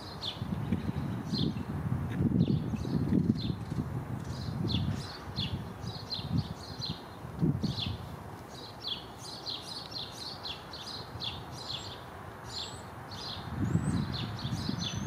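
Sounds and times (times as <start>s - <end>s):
songbirds chirping: 0.0s - 1.7s, 2.3s - 15.0s
wind rumble on microphone: 0.0s - 8.6s, 12.5s - 15.0s.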